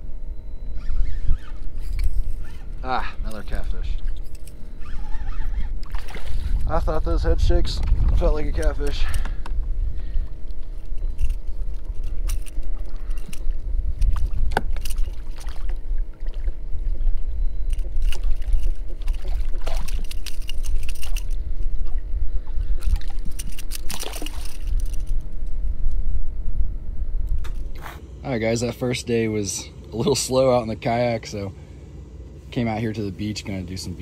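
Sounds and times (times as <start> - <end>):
wind rumble on microphone: 0.0 - 28.0
faint steady hum: 0.0 - 34.0
water lapping against hull: 0.6 - 25.4.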